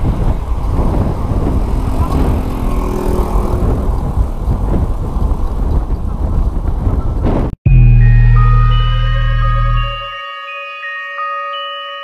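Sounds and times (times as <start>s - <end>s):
bike tyre noise on road: 0.0s - 7.5s
wind buffeting microphone: 0.0s - 7.6s.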